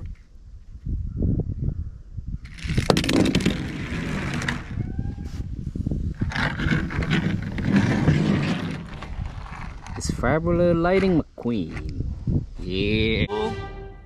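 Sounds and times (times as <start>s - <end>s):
toy car wheels rolling and scraping: 2.5s - 4.8s, 6.1s - 10.2s.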